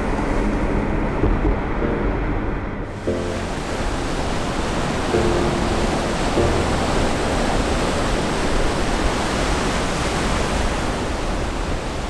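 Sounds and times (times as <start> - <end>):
waves breaking on shore: 2.9 - 12.0.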